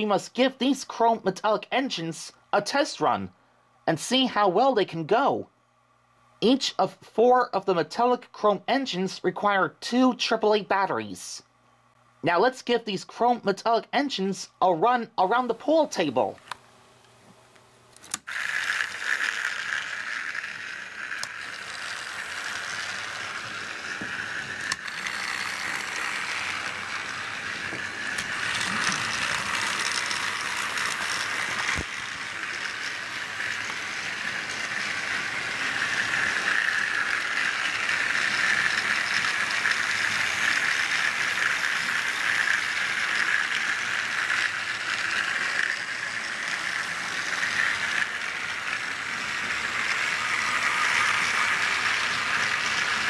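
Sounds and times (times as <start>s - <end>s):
toy train motor whirring: 17.9s - 53.0s.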